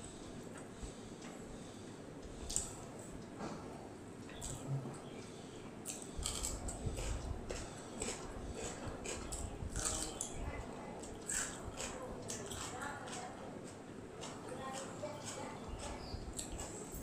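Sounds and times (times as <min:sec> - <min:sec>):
wet chewing: 0:05.8 - 0:10.4, 0:11.0 - 0:16.9.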